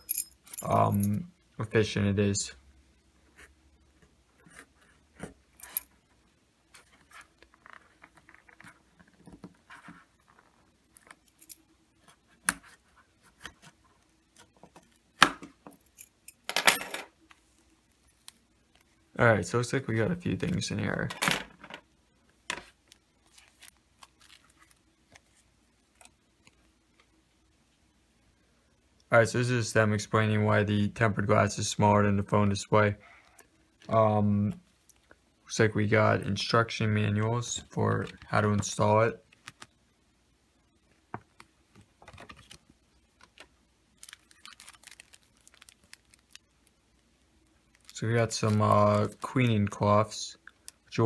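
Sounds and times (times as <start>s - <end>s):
paper and plastic packaging rustling: 22.6s - 25.5s, 41.8s - 46.8s, 47.7s - 50.1s
paper leaflet rustling: 41.8s - 46.4s.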